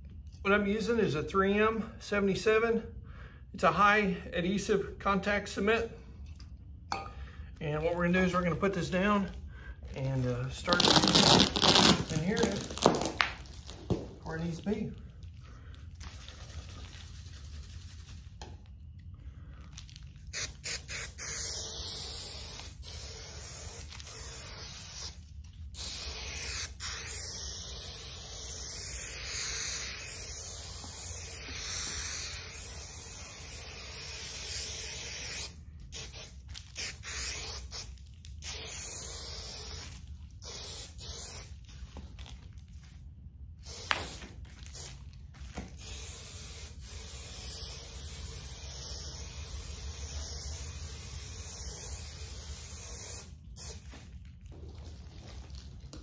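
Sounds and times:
aerosol spray hissing: 20.4s - 25.2s, 25.8s - 37.8s, 45.8s - 53.8s.

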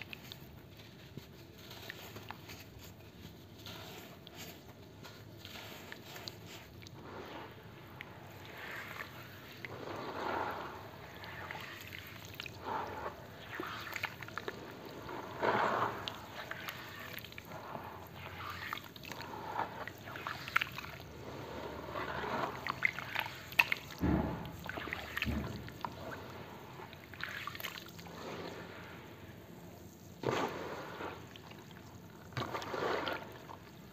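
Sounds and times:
hands squelching wet slurry: 0.0s - 33.9s.

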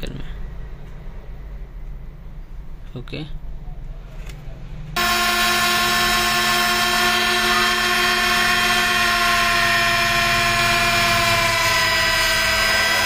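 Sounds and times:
machine motor whining: 5.0s - 13.0s.

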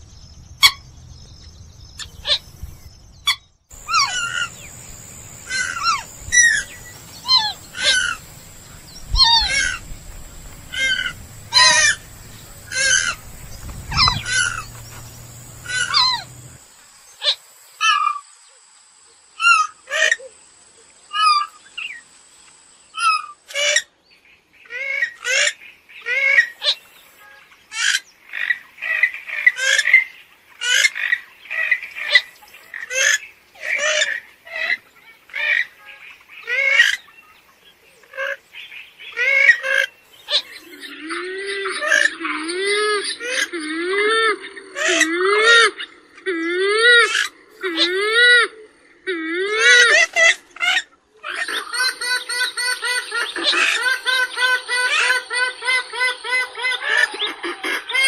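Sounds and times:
background hum: 0.0s - 17.8s
bird downward-sweeping calls: 3.3s - 16.6s.

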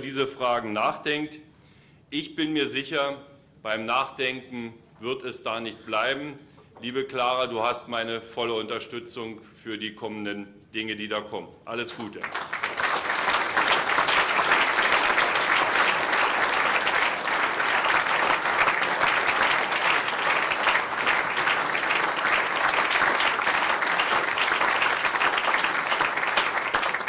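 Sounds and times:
large audience applauding: 12.1s - 27.0s.

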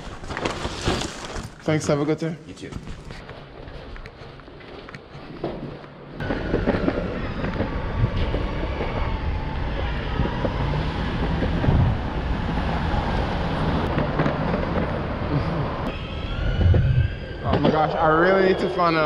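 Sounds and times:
low street rumble: 5.9s - 19.0s
wind buffeting microphone: 6.2s - 18.7s.

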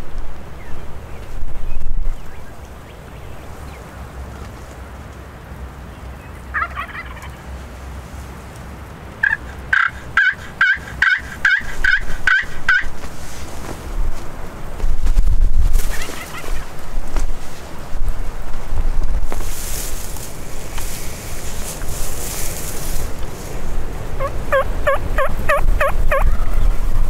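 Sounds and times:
low wind rumble: 0.0s - 27.0s
wild turkeys yelping: 6.5s - 7.5s, 9.2s - 13.1s, 15.9s - 16.8s, 21.2s - 26.7s.

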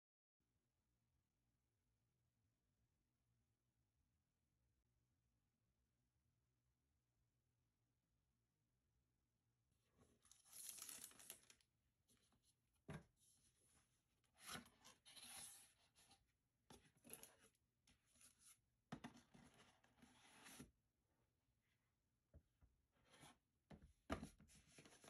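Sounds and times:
plastic wrap tearing and crinkling: 10.3s - 11.6s.

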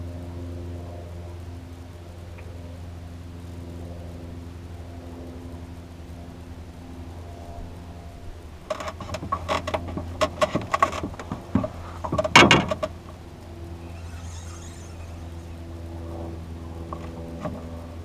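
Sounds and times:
outboard motor idling: 0.0s - 18.0s
fishing tackle clicks and knocks: 8.7s - 13.2s.

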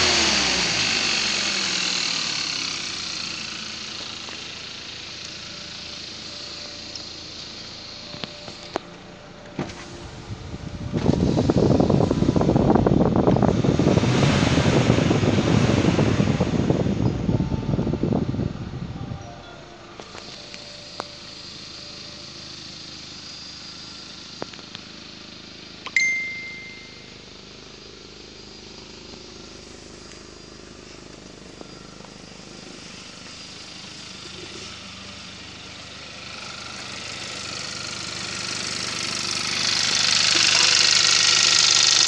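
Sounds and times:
car engine running: 0.0s - 42.0s
short beep: 25.9s - 27.2s.

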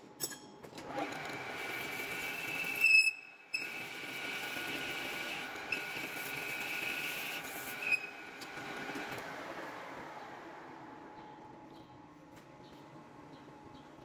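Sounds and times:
metal lathe cutting whine: 1.4s - 9.0s
sharp squeal: 7.6s - 8.3s.

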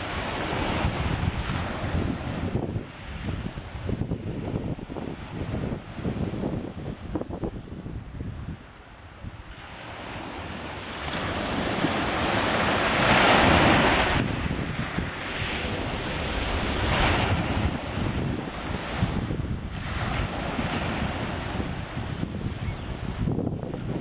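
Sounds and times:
waves washing up pebble beach: 0.0s - 7.2s, 9.5s - 24.0s
wind rumbling on microphone: 0.0s - 24.0s.

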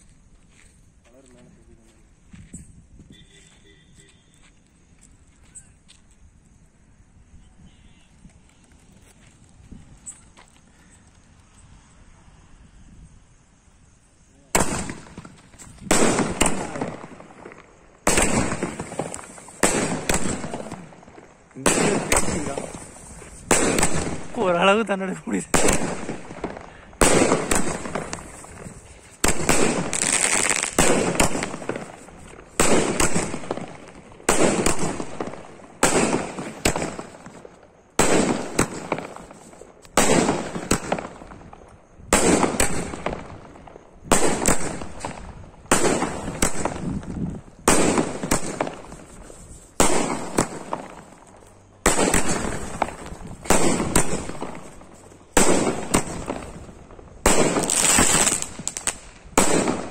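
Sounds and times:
fireworks cake bangs: 14.5s - 59.9s.

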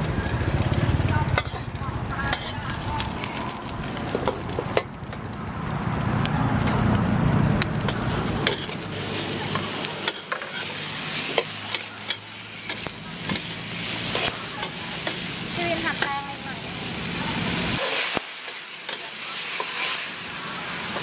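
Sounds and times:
food sizzling in a wok: 0.0s - 21.0s
metal ladle scraping a wok: 1.3s - 2.9s, 7.9s - 16.4s.

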